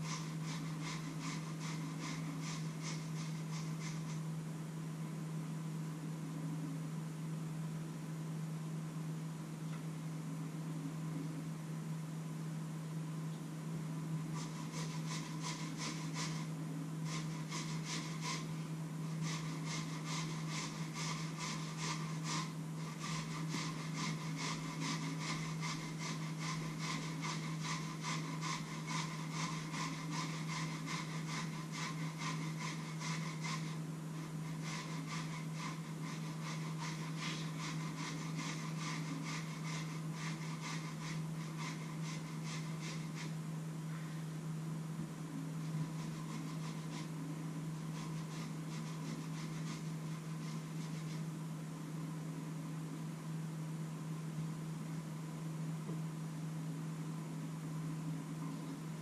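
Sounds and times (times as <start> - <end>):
rhythmic scraping strokes: 0.0 - 4.5, 14.0 - 43.5, 45.2 - 51.5
steady low hum: 0.0 - 59.0.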